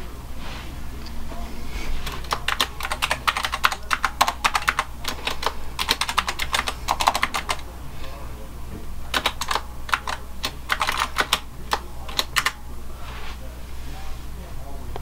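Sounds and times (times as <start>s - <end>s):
keyboard typing: 2.0s - 7.7s, 9.0s - 12.6s.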